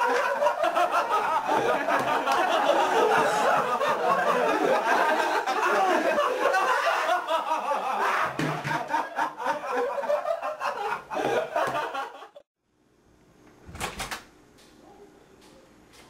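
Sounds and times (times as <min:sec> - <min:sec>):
boys laughing: 0:00.0 - 0:12.5.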